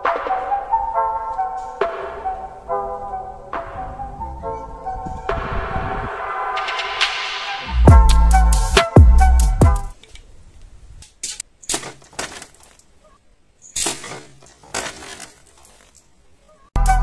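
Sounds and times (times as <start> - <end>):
arrow striking plastic bottle: 11.6 - 12.8.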